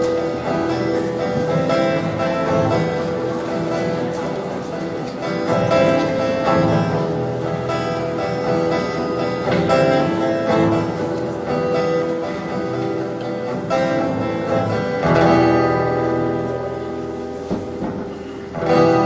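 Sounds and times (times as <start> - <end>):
held notes: 0.0 - 19.0
plucked acoustic guitar: 0.0 - 19.0.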